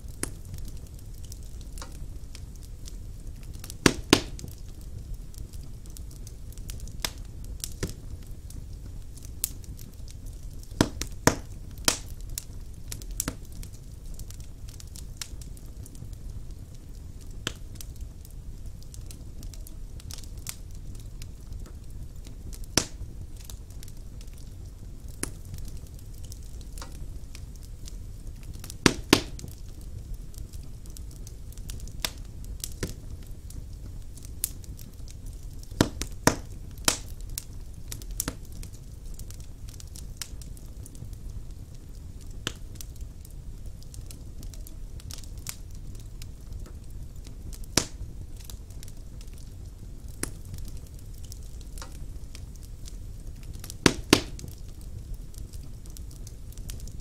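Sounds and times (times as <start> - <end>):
fire rumbling in a fireplace: 0.0 - 57.0
wood crackling and popping: 0.0 - 57.0.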